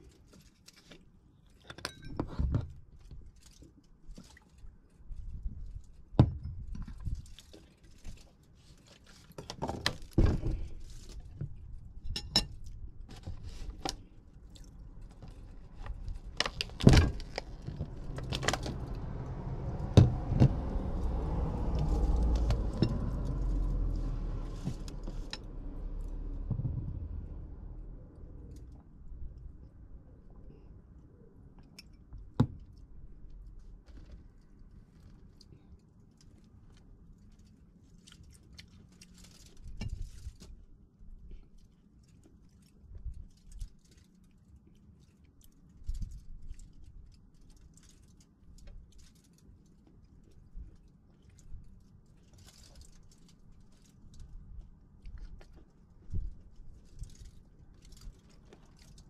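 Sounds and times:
low rumble: 14.7 - 30.1.

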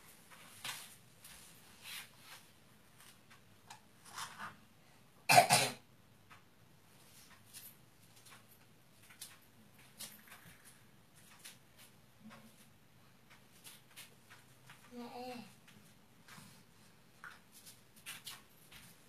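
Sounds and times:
faint clicks and rustles: 0.0 - 4.7, 6.2 - 19.0
person coughing: 5.3 - 5.8.

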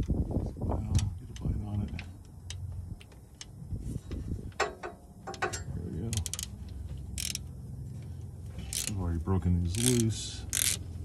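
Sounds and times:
hand ratchet clicking: 5.3 - 6.5, 7.2 - 7.5, 8.6 - 9.0, 9.7 - 10.8.

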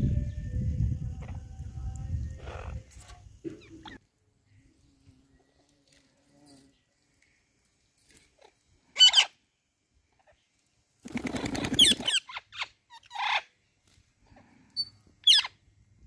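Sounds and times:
parrots screeching: 9.0 - 9.3.

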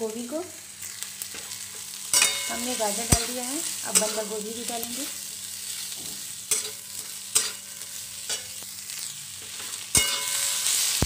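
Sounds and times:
vegetables sizzling in hot oil: 0.0 - 11.0
spatula scraping a metal pan: 5.7 - 11.0
sharp metallic clank: 9.9 - 10.6.

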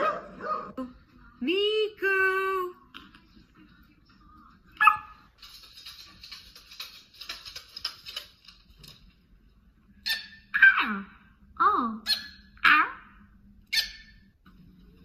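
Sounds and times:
dog barking: 0.0 - 0.8, 4.8 - 5.2, 13.7 - 14.1
dog yelping: 10.0 - 11.0, 13.7 - 14.2.

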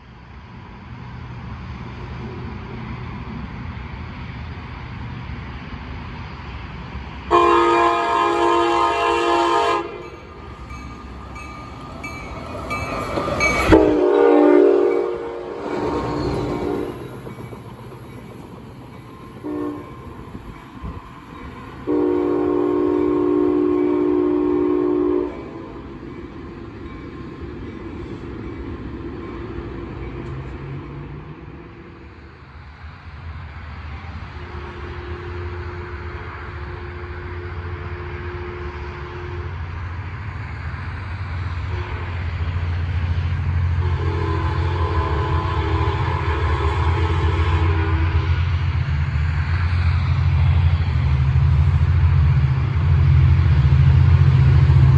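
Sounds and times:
low train rumble: 0.0 - 54.9
train horn blasts: 7.3 - 10.3, 13.5 - 17.0, 19.4 - 21.0, 21.8 - 25.8, 34.4 - 39.8, 41.7 - 42.4, 43.7 - 48.4.

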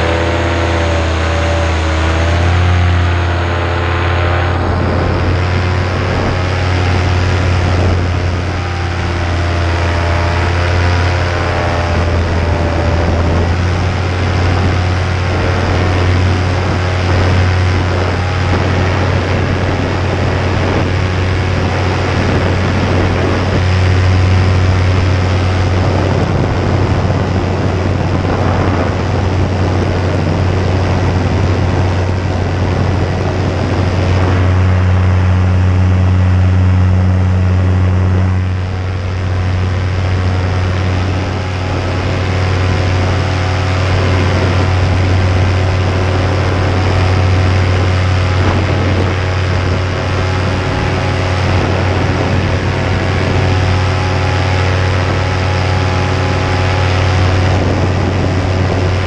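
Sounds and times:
paramotor engine droning: 0.0 - 59.0
rushing air: 0.0 - 59.0.

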